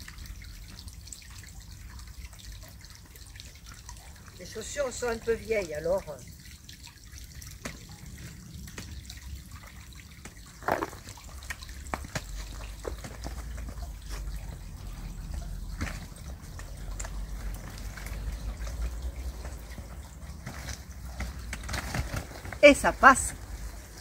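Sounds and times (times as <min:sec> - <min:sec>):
footsteps on dirt path: 0:10.6 - 0:11.1
trolley wheels rolling: 0:10.6 - 0:24.0.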